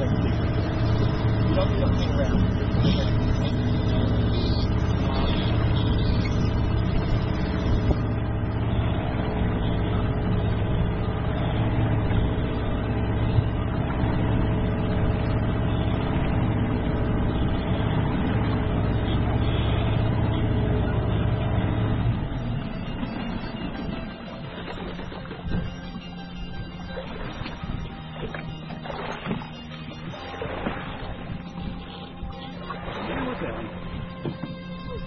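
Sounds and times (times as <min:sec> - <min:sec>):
outboard motor running: 0:00.0 - 0:35.0.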